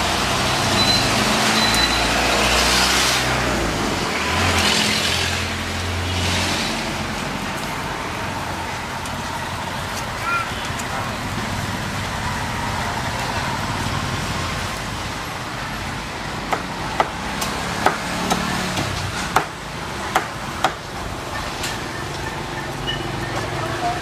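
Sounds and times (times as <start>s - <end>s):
traffic noise: 0.0s - 24.0s.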